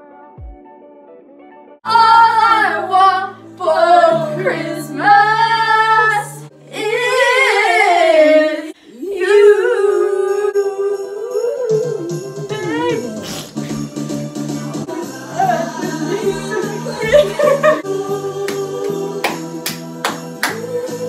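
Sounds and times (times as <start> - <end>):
woman singing: 1.9 - 13.1.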